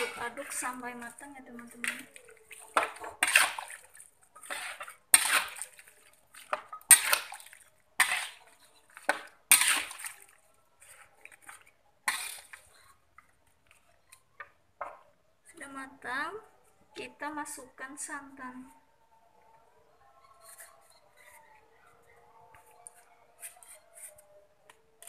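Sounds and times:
metal spatula scraping a wok: 0.0 - 5.8, 6.4 - 12.9.

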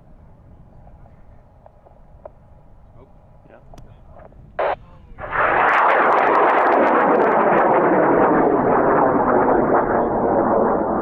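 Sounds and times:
sharp crackle: 4.2 - 11.0
rocket motor burning: 4.6 - 11.0.

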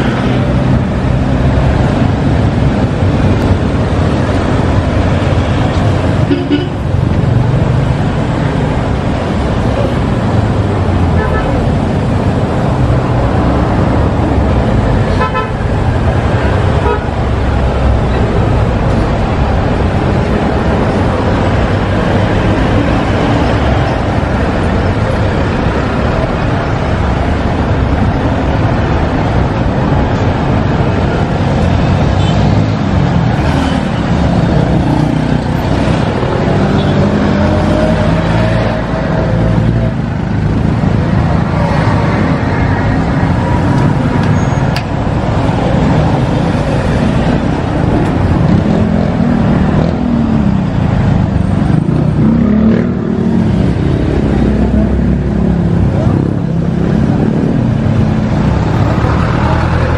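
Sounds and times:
vehicle engines passing: 0.0 - 59.9.

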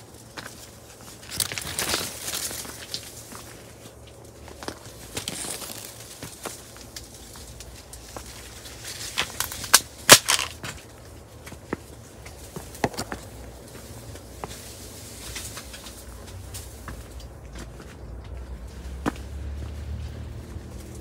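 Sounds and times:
footsteps on dry cane: 0.0 - 21.0
dry stalks snapping: 0.2 - 11.6, 14.2 - 17.6.

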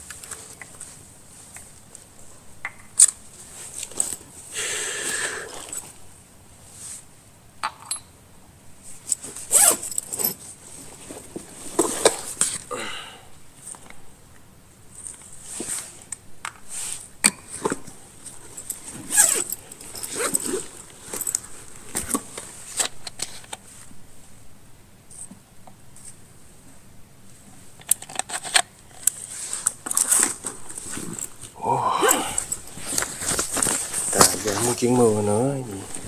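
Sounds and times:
rustling: 3.1 - 7.1, 8.8 - 12.7, 14.9 - 24.4, 25.9 - 36.0.

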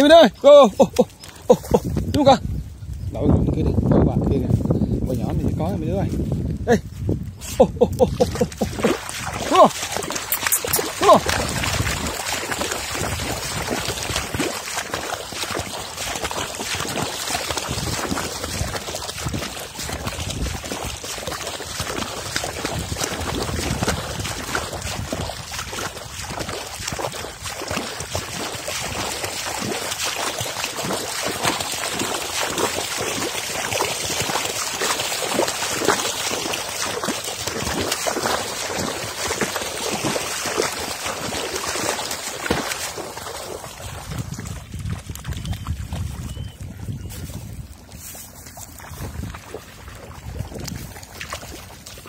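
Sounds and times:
water splashing and trickling: 0.0 - 3.0, 4.6 - 52.0.

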